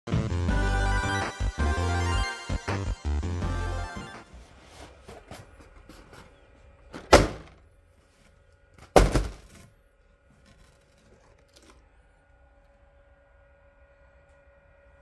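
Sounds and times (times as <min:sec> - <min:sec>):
faint steady hum: 0:04.2 - 0:15.0.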